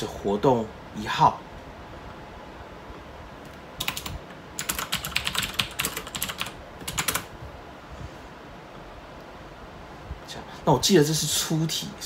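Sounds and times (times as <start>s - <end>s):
keyboard typing: 3.4s - 7.3s.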